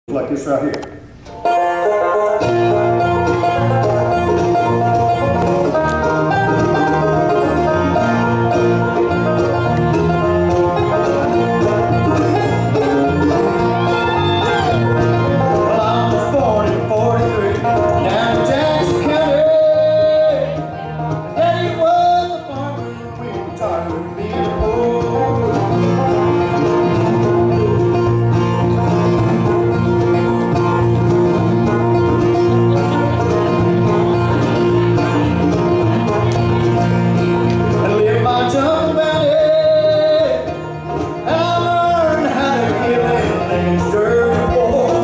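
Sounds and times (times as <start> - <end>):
bluegrass band playing: 0.1 - 45.0
man singing: 11.0 - 26.3, 27.2 - 28.2, 37.7 - 45.0.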